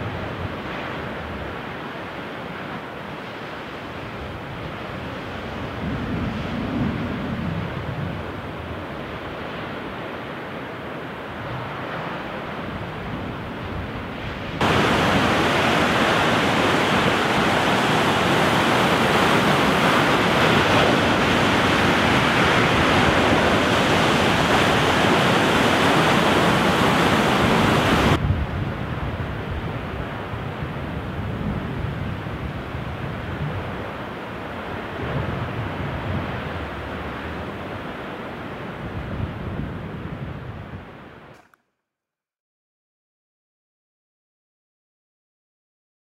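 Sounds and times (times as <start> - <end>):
waves crashing on rocks: 14.3 - 28.2.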